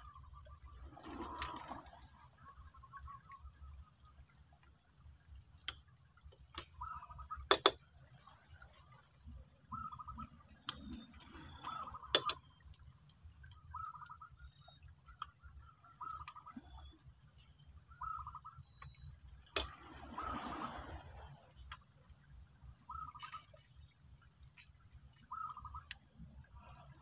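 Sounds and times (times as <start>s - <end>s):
shells clicking against rock: 23.2s - 24.0s.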